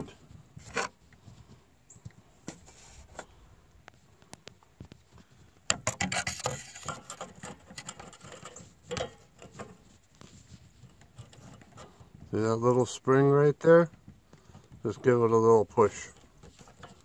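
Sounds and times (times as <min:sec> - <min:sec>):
scraping and clattering: 0:05.7 - 0:12.4, 0:14.4 - 0:17.0.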